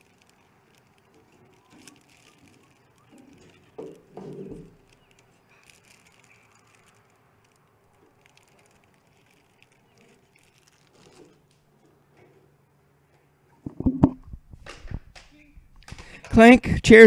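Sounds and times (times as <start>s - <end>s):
faint clicks: 0.0s - 11.6s
plastic wrappers crinkling: 0.0s - 12.1s.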